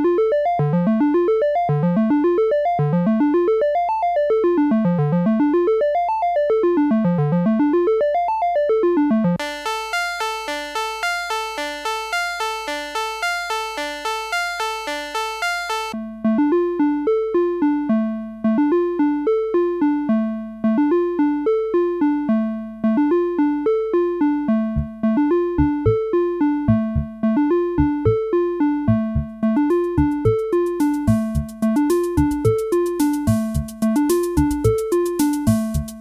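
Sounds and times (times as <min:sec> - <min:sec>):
low bass notes: 0:24.7 - 0:25.0, 0:25.6 - 0:26.0, 0:26.7 - 0:27.2, 0:28.9 - 0:36.0
organ arpeggio broken chords: 0:28.9 - 0:36.0.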